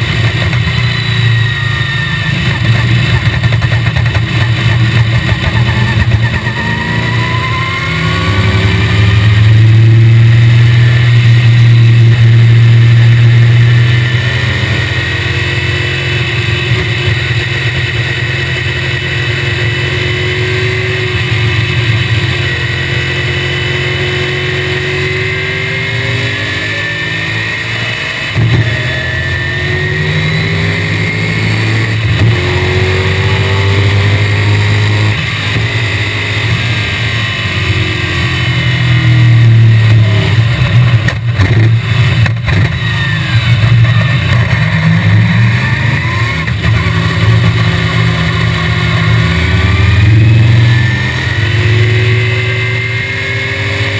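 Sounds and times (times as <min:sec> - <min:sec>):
car engine revving: 0:00.0 - 0:53.9.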